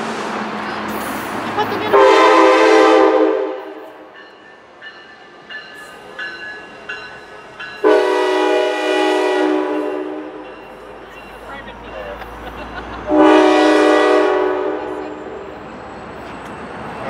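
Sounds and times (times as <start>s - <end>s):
locomotive horn blast: 1.9s - 4.0s, 7.8s - 10.5s, 13.0s - 15.6s.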